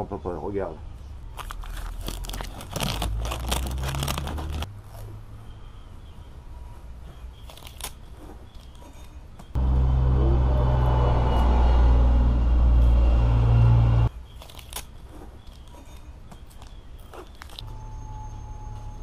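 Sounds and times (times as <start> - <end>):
vehicle engine rumble: 1.0 - 7.2, 9.4 - 14.2
masking tape peeling and tearing: 1.4 - 5.1, 7.4 - 8.8, 14.3 - 15.7.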